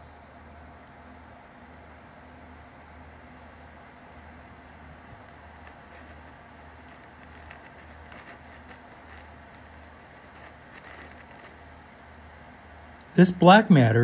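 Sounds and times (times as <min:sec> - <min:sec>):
light clicks and rustles: 0:05.0 - 0:11.6.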